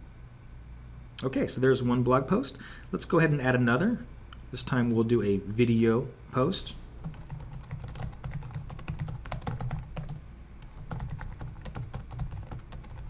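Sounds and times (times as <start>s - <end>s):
low steady hum: 0.0s - 13.0s
typing on a keyboard: 7.0s - 13.0s.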